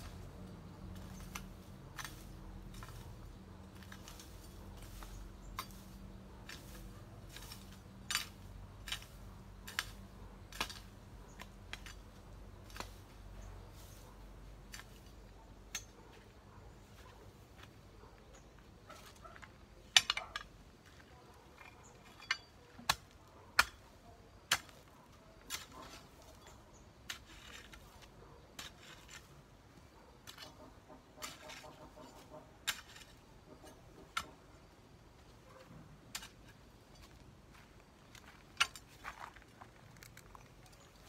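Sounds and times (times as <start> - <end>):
scraping and rustling grass: 0.0 - 41.0
garden tool clicks and knocks: 19.3 - 23.9.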